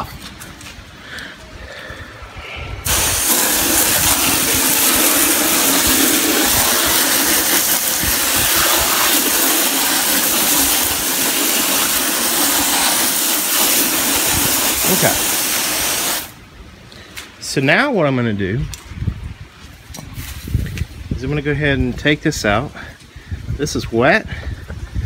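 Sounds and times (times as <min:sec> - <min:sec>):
hose nozzle spraying water: 0:02.8 - 0:16.4.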